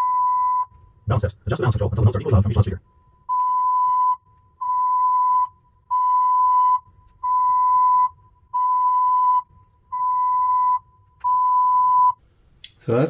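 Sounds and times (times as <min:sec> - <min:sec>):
test tone notes: 0:01.1 - 0:02.8.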